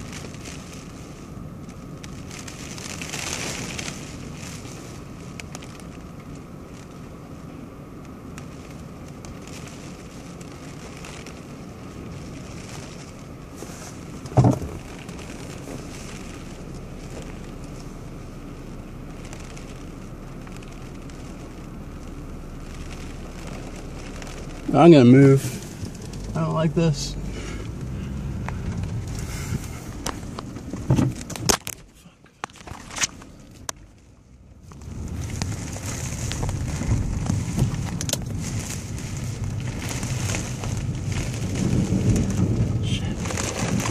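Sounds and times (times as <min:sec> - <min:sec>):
rain and wind on car: 0:00.0 - 0:43.9
loud thump: 0:14.4 - 0:14.8.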